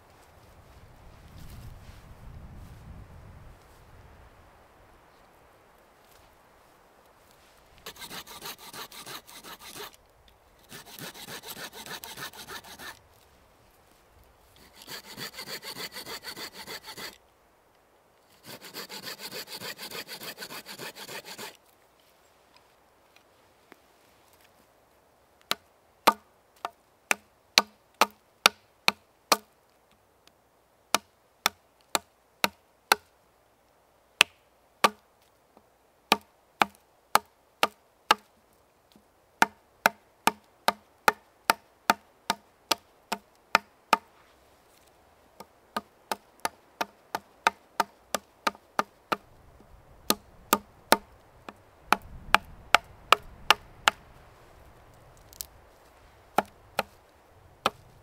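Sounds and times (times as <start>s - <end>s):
hand tool striking wood: 50.1s - 51.1s, 51.9s - 54.0s.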